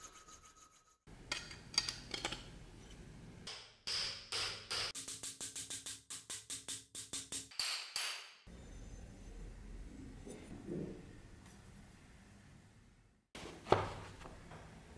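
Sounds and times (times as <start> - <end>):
hammer tapping on metal: 3.5 - 7.8.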